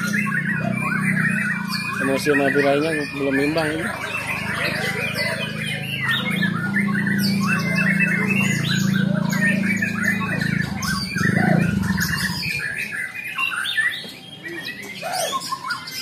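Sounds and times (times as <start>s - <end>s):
birds singing: 0.0s - 16.0s
low hum: 8.0s - 12.8s.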